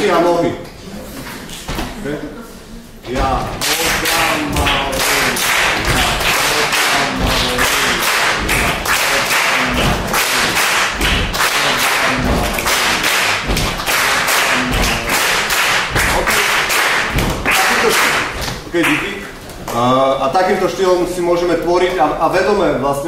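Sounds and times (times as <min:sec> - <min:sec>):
people chanting rhythm syllables: 0:03.0 - 0:19.2
foot stamps: 0:03.1 - 0:18.7.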